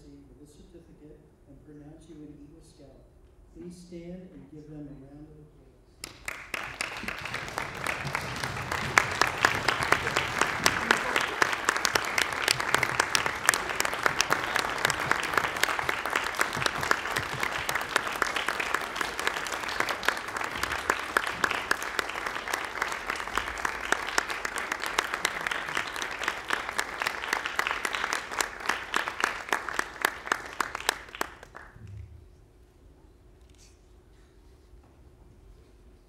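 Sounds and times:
audience applause: 0:06.0 - 0:31.8.

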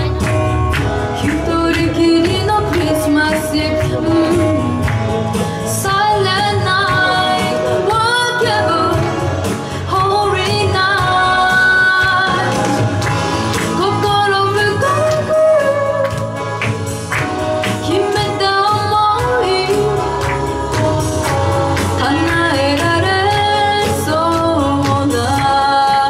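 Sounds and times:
instrumental accompaniment: 0:00.0 - 0:26.0
girl singing into microphone: 0:01.2 - 0:04.9, 0:05.6 - 0:13.0, 0:13.6 - 0:16.6, 0:17.7 - 0:26.0.

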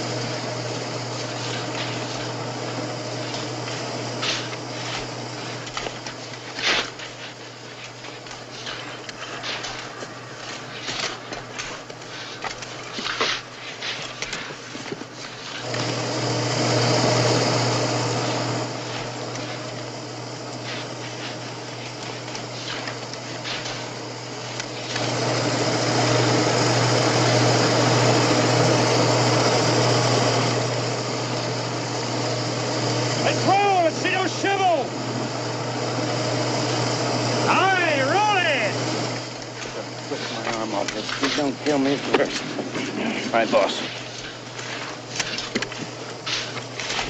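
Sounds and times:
shovels scraping sand: 0:00.6 - 0:30.2, 0:37.4 - 0:47.0
hiss of spreading sand: 0:01.1 - 0:30.6.

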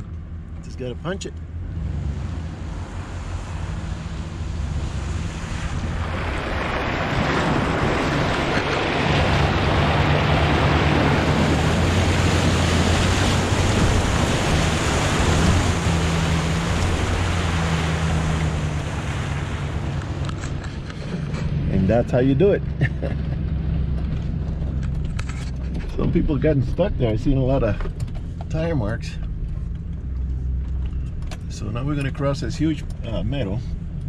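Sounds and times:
pickup engine humming low: 0:00.0 - 0:34.0
water rushing from tires: 0:01.6 - 0:22.5.

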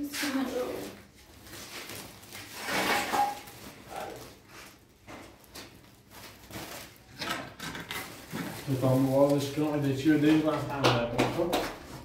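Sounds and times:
wooden boards scraping on concrete: 0:02.5 - 0:03.5.

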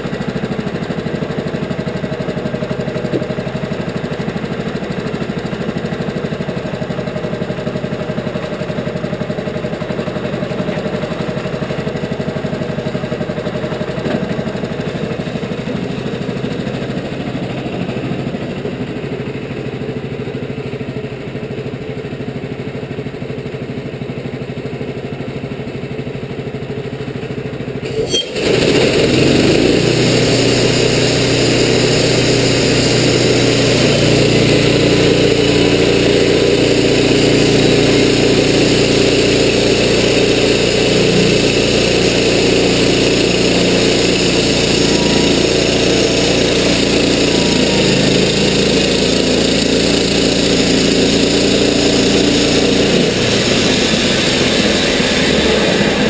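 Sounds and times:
sawmill engine running: 0:00.0 - 0:56.0
band blade cutting log: 0:43.0 - 0:56.0.

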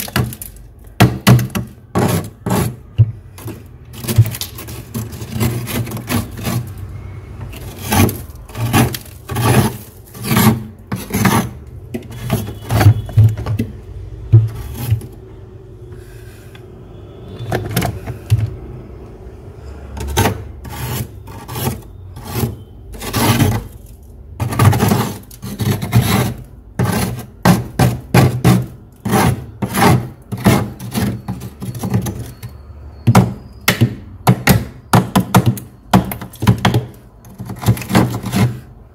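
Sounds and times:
metal spoon scraping frost: 0:01.4 - 0:13.7, 0:14.4 - 0:15.2, 0:19.7 - 0:33.4, 0:35.0 - 0:38.8.

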